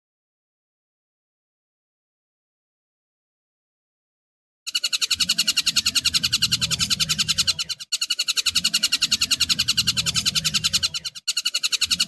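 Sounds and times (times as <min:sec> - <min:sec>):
kingfisher rattling call: 0:04.7 - 0:12.0.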